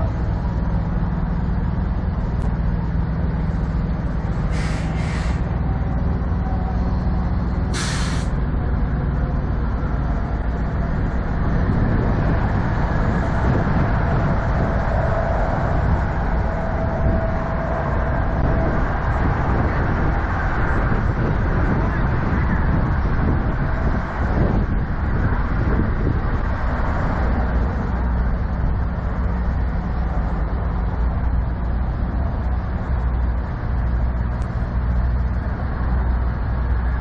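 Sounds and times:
diesel truck engines idling: 0:00.0 - 0:37.0
air brake hisses: 0:04.5 - 0:05.5, 0:07.7 - 0:08.4.

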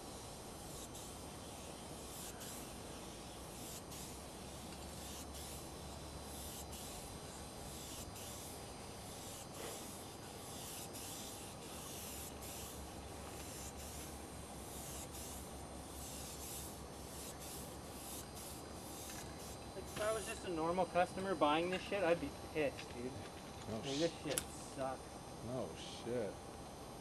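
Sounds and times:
spray-paint can hissing: 0:00.0 - 0:20.5.

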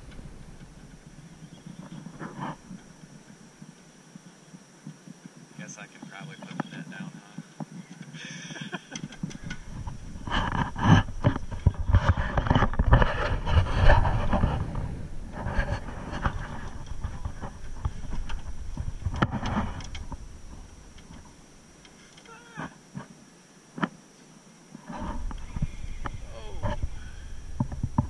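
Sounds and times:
low rumbling noise: 0:00.0 - 0:04.1, 0:09.2 - 0:21.9.

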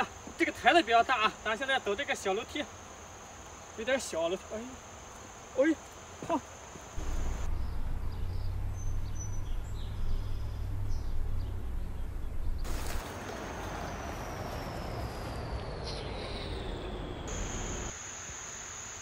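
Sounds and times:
steady hiss: 0:00.0 - 0:08.7, 0:12.6 - 0:19.0
high insect tone: 0:00.0 - 0:19.0
low uneven rumble: 0:07.0 - 0:17.9.

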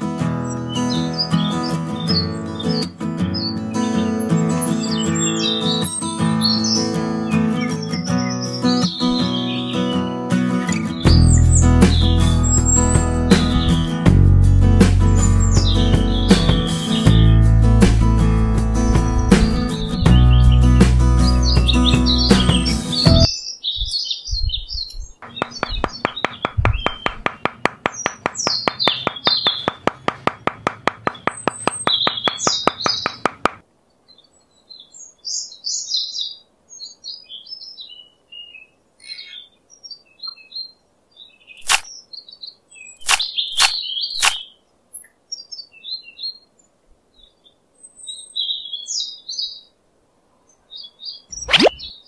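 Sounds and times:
small birds chirping: 0:00.4 - 0:14.0, 0:15.2 - 0:17.5, 0:18.8 - 0:52.0
fast rattle of ticks: 0:25.2 - 0:33.6
sharp clicks: 0:25.2 - 0:33.6, 0:41.6 - 0:41.9, 0:43.0 - 0:44.4.

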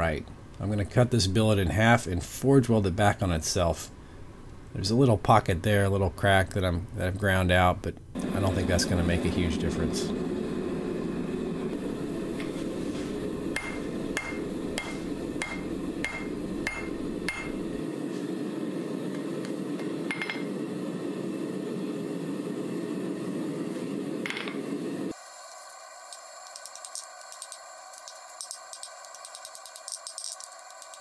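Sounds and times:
gas forge burner roaring: 0:08.1 - 0:31.0
hammer striking steel on anvil: 0:13.6 - 0:17.6, 0:20.1 - 0:20.5.

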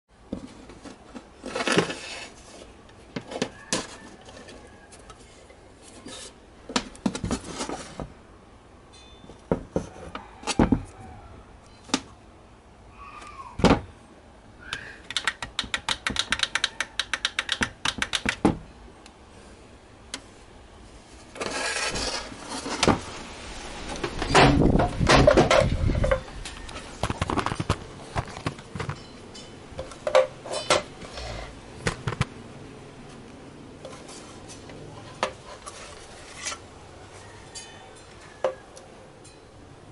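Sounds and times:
rubbing and scraping: 0:00.3 - 0:06.4, 0:07.0 - 0:08.1, 0:20.9 - 0:28.7, 0:33.8 - 0:36.7.

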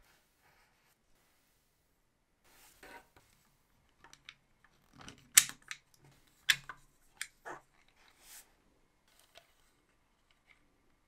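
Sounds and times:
sharp plastic clicks: 0:04.0 - 0:07.4
plastic parts rustling: 0:04.0 - 0:08.2.

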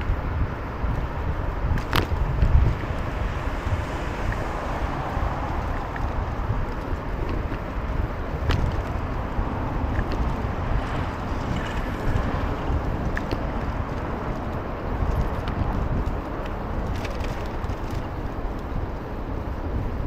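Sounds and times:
road noise: 0:00.0 - 0:20.0
wind on microphone: 0:00.0 - 0:20.0.

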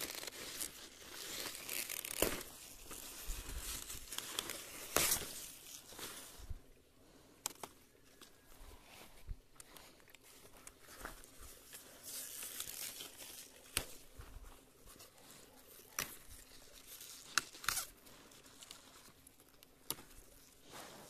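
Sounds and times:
leaves rustling: 0:00.0 - 0:06.6, 0:10.2 - 0:21.0
stalks snapping: 0:01.4 - 0:03.0, 0:12.4 - 0:14.0, 0:17.3 - 0:17.9, 0:19.5 - 0:20.2.

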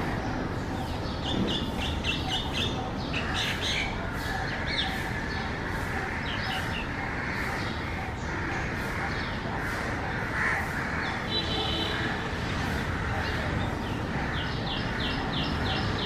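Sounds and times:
bird squawking and chirping: 0:00.0 - 0:11.9.

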